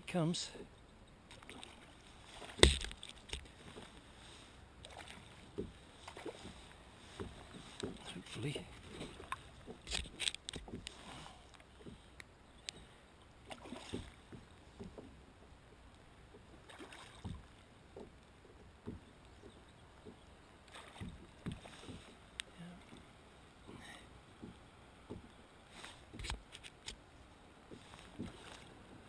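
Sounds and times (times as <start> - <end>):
water splashing around kayak: 1.1 - 29.0
light knocks on kayak hull: 2.6 - 3.4, 17.2 - 20.2, 24.4 - 25.3.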